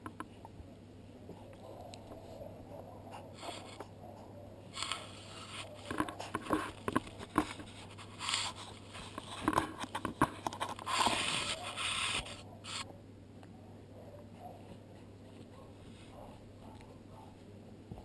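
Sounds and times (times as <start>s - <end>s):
rustling: 4.7s - 12.9s
puppies shuffling on blanket: 10.8s - 12.8s, 14.4s - 18.0s.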